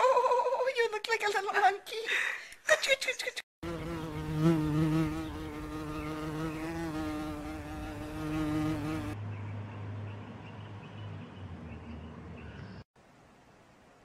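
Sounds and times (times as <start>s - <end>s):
insect wingbeat buzz: 3.6s - 9.2s.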